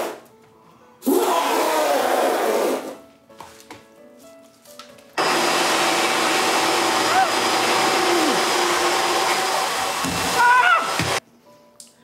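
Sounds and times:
man imitating elephant trumpeting: 1.0 - 2.9
vacuum cleaner running: 5.2 - 11.2.

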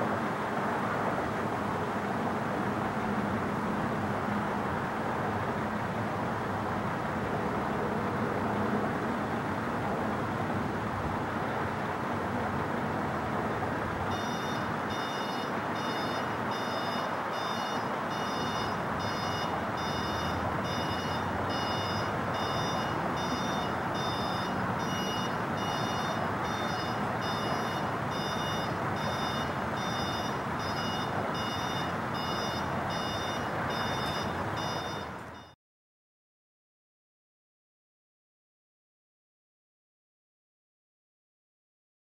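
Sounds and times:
high-pitched beeping: 14.1 - 35.6.

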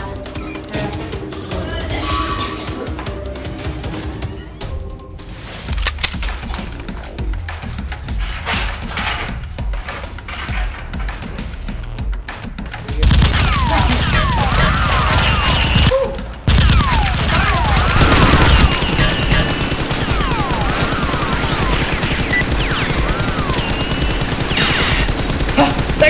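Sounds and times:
automatic gunfire sound effects: 13.0 - 15.9, 16.5 - 26.0
toy blaster firing: 16.5 - 26.0.

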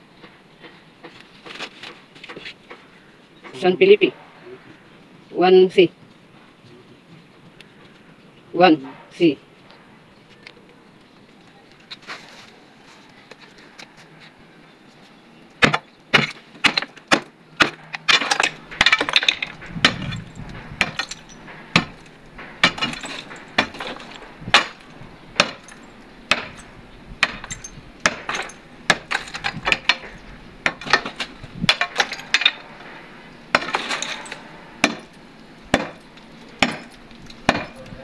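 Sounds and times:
bar knocking and cracking concrete: 15.6 - 32.8, 33.5 - 38.0.

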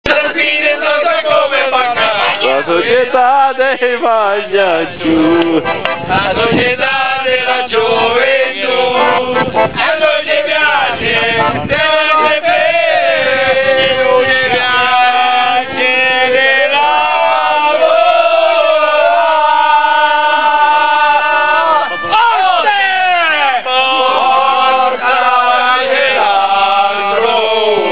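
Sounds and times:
men singing in chorus: 0.0 - 21.8, 23.2 - 27.9
accordion: 0.1 - 16.6.

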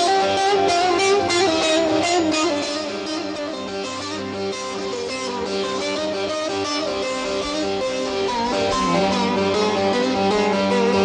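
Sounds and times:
long-necked lute picked melody: 0.0 - 11.0.

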